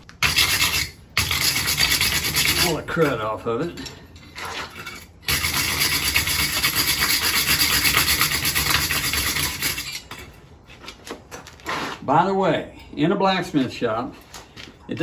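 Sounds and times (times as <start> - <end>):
wire brush scrubbing metal: 0.2 - 3.4, 4.2 - 10.2.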